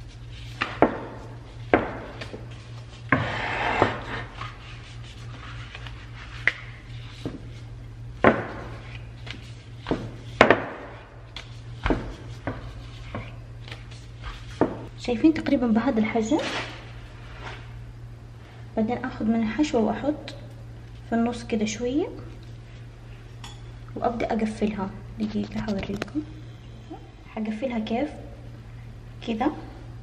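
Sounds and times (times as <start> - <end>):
steady low hum: 0.0 - 30.0
rolling pin rubbing roll: 2.9 - 6.4.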